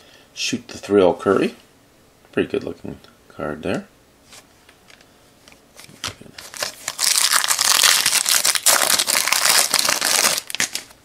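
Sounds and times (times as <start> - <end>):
foil wrapper crinkling: 6.3 - 11.0.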